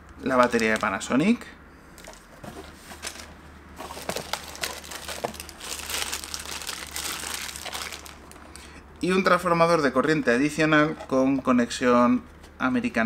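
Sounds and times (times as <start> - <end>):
plastic bags crinkling: 0.3 - 1.1, 3.0 - 8.6.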